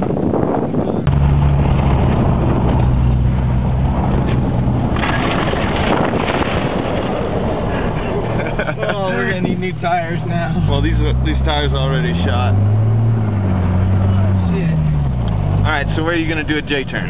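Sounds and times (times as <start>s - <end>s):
wind on microphone: 0.0s - 8.4s
car engine running hard: 0.0s - 17.0s
tyres rushing on gravel: 3.8s - 12.6s.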